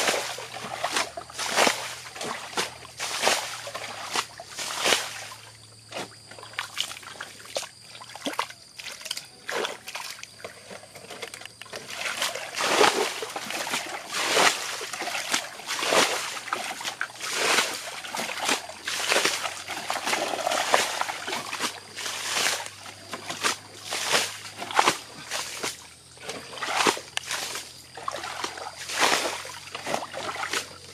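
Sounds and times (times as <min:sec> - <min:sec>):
fish splashing: 0:00.0 - 0:05.5, 0:11.6 - 0:30.8
trickling water: 0:00.0 - 0:30.9.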